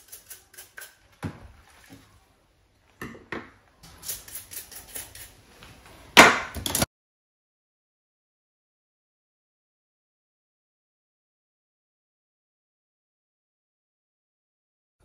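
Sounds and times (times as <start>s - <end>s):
metal parts clinking in sink: 0.0s - 1.0s, 3.8s - 5.4s.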